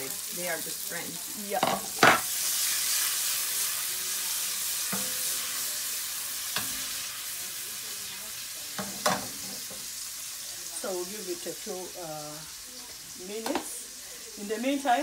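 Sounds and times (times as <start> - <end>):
food sizzling in oil: 0.0 - 15.0.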